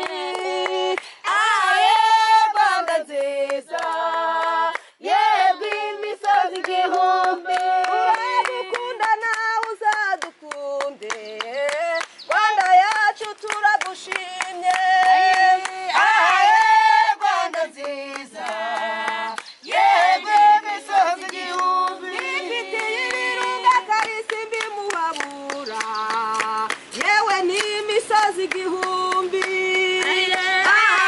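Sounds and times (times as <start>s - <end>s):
hand-clapping: 0.0s - 2.0s, 2.8s - 5.0s, 5.6s - 31.0s
group singing: 0.0s - 31.0s.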